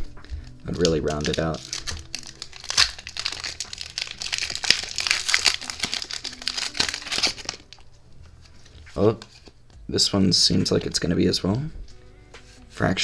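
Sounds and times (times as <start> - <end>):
foil wrapper crinkling: 0.1 - 7.9.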